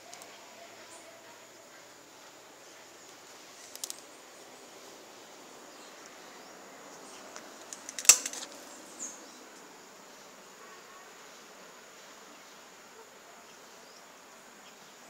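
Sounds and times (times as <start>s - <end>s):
faint steady hiss: 0.0s - 15.0s
sharp clicks: 3.7s - 4.0s, 7.6s - 8.5s.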